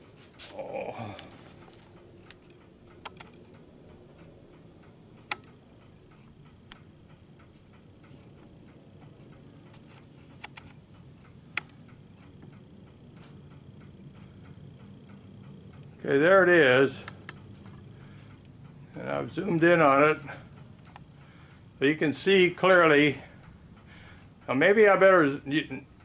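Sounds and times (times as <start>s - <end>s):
low room hum: 0.0s - 26.0s
wall clock ticking: 1.2s - 26.0s
sharp clicks: 1.6s - 18.8s, 20.6s - 21.1s.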